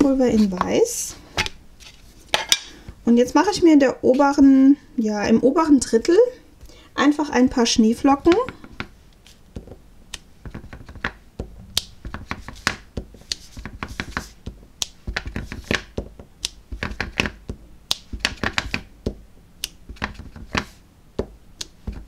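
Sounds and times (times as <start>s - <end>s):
stamp block tapping and clicking: 9.6s - 11.2s, 11.8s - 22.0s.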